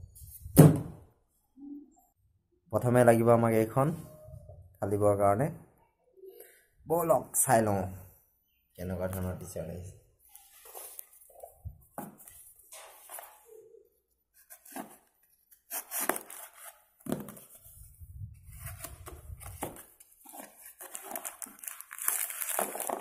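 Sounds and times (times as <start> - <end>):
paper parcels rustling and tearing: 14.4 - 17.8, 18.4 - 23.0.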